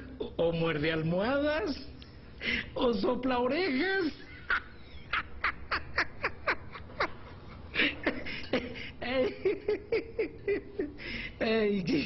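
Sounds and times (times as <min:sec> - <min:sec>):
man laughing hard: 0:04.2 - 0:11.4.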